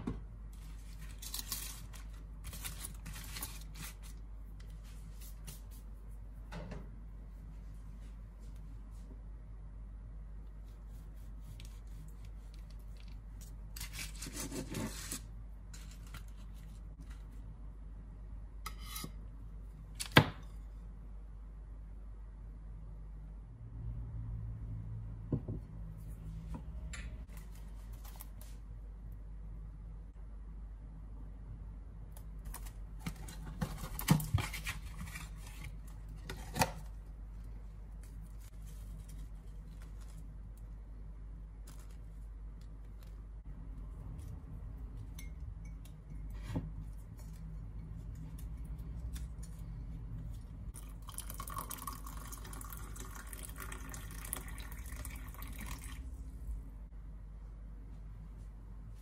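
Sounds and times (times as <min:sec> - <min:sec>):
cardboard and paper crinkling: 0:00.6 - 0:04.2, 0:32.5 - 0:36.8, 0:38.0 - 0:40.4.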